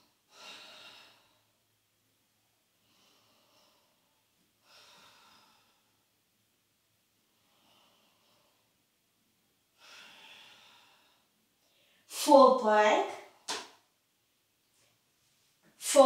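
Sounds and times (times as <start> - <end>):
person breathing slowly: 0.2 - 1.6, 2.7 - 6.1, 7.2 - 8.9, 9.8 - 12.1.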